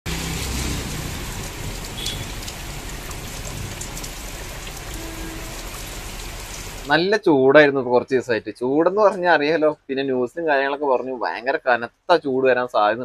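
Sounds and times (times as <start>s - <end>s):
steady rain falling: 0.1s - 7.1s.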